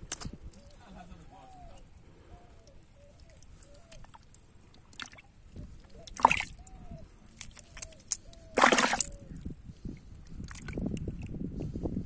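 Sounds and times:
mud and water sloshing: 1.4s - 9.5s, 10.2s - 11.3s.

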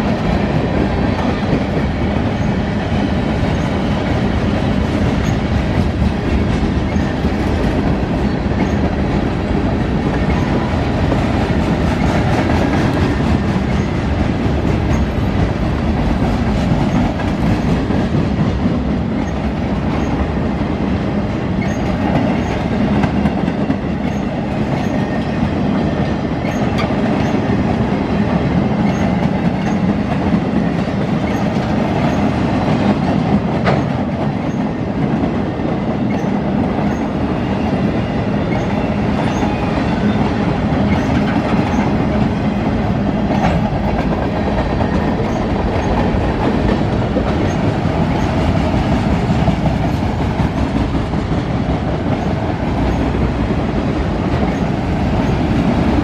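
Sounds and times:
freight train rolling past: 0.0s - 56.0s.

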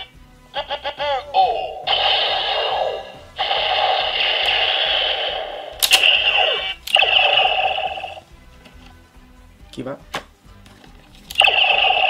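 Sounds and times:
toy belt electronic buzzing tone: 1.5s - 8.2s
sharp plastic clicks: 5.7s - 7.1s.

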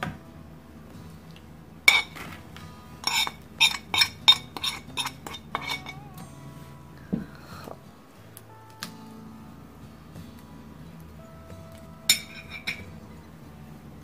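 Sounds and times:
metal spoon clinking on ceramic: 1.9s - 2.3s, 3.0s - 6.1s, 12.1s - 12.9s.

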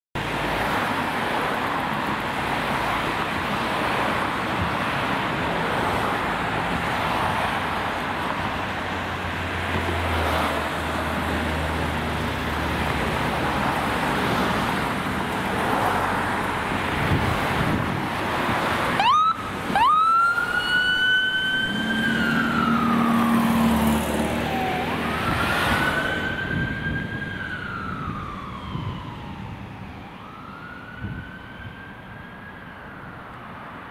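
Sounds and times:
passing vehicle engine hum: 0.2s - 33.9s
road traffic noise: 0.2s - 33.9s
ambulance siren wailing: 18.9s - 33.8s.

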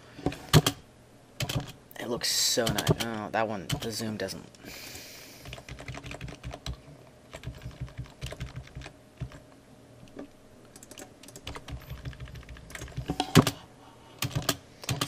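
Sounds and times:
keyboard and mouse clicking: 5.4s - 9.4s, 10.1s - 13.6s, 14.2s - 15.0s.

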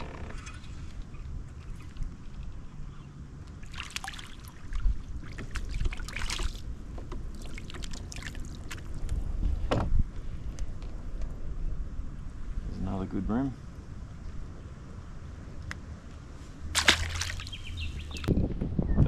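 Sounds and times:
fish splashing at water surface: 3.6s - 6.6s, 16.7s - 17.7s
steady low rumble: 4.4s - 19.0s
sharp splash or knock: 16.7s - 17.6s.

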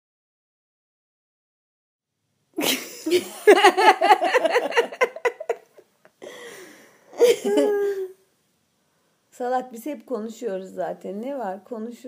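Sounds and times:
woman laughing: 2.6s - 5.8s, 7.1s - 8.1s.

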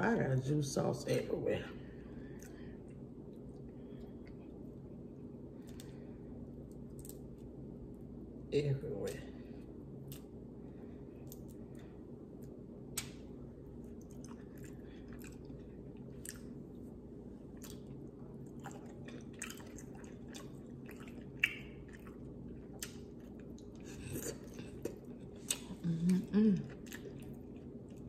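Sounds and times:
faint steady hum: 0.0s - 28.0s
chewing with wet mouth smacks: 12.3s - 28.0s.

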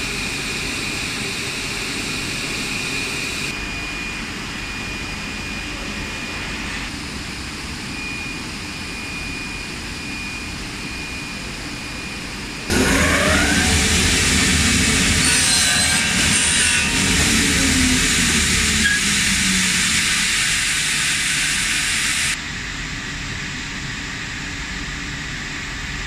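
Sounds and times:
thin high whine: 0.0s - 22.6s
cutting saw spinning up: 12.7s - 22.4s
extrusion line humming: 12.7s - 22.4s.

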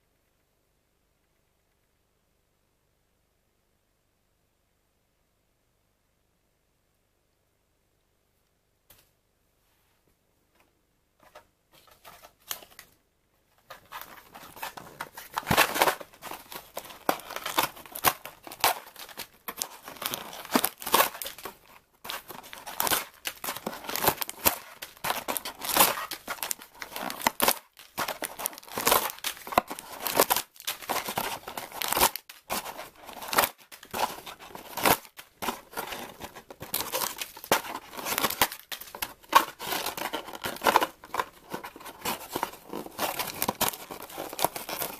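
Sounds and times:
wrapped tea sachets crinkling: 13.9s - 44.9s.

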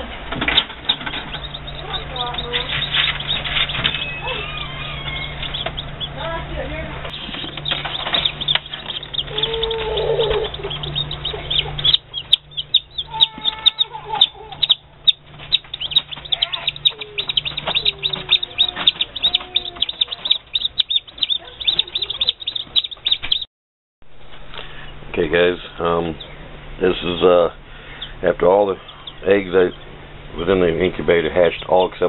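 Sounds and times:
low steady hum: 0.0s - 23.4s, 24.1s - 32.0s
chicks peeping: 0.0s - 23.5s, 24.6s - 32.0s.

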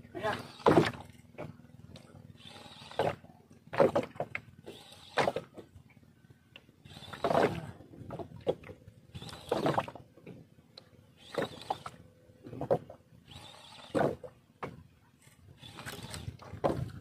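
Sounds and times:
fishing reel whirring: 0.2s - 1.2s, 1.9s - 3.2s, 4.5s - 5.5s, 6.8s - 7.6s, 9.1s - 10.0s, 11.1s - 12.0s, 13.2s - 14.2s, 15.5s - 17.0s.

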